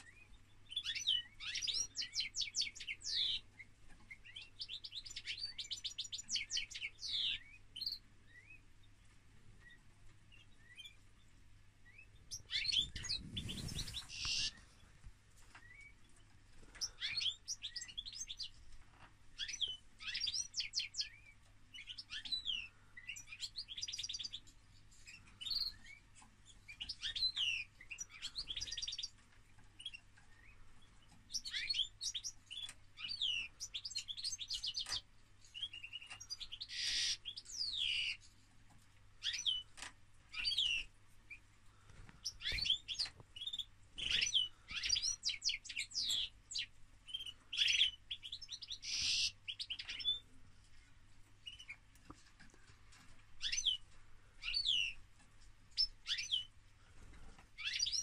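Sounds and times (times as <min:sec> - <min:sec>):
goldfinch singing: 0:00.0 - 0:08.6, 0:11.8 - 0:18.6, 0:19.4 - 0:38.2, 0:39.2 - 0:41.5, 0:42.2 - 0:50.3, 0:53.0 - 0:55.0, 0:55.7 - 0:56.5, 0:57.6 - 0:58.0.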